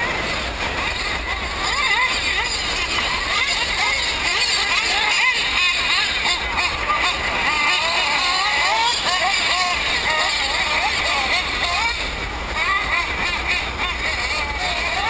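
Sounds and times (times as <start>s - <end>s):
rc car engines whining: 0.8s - 12.0s.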